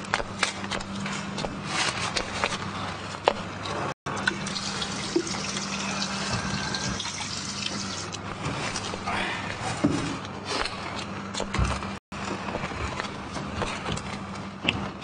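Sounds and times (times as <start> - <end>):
tap water running into basin: 4.2 - 8.2.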